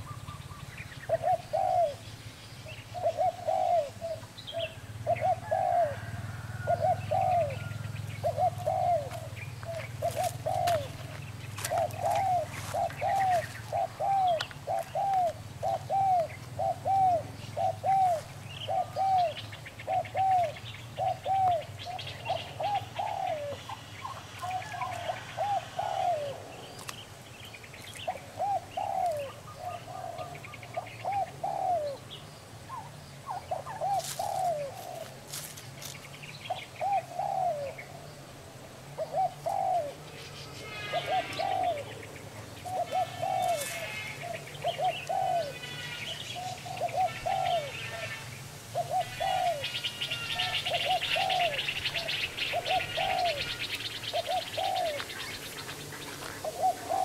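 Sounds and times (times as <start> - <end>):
dove cooing: 0.0 - 26.9, 27.9 - 38.0, 38.9 - 57.0
small birds chirping: 0.0 - 38.0, 39.0 - 57.0.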